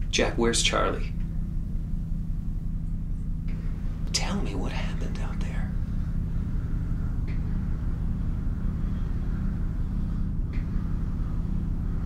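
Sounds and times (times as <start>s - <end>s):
low rumbling drone: 0.0s - 12.0s.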